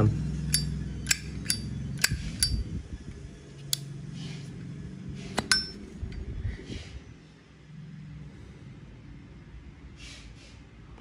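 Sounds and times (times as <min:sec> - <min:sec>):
low steady hum: 0:00.0 - 0:09.8
lighter lid clinking open and shut: 0:00.5 - 0:02.6, 0:05.3 - 0:05.8.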